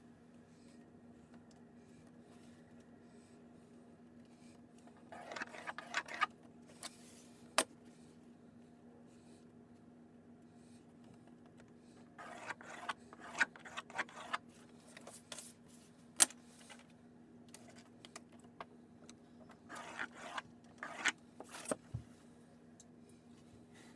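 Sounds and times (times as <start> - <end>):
pencil scratching along ruler: 5.0 - 6.3, 12.0 - 14.4, 19.5 - 21.8.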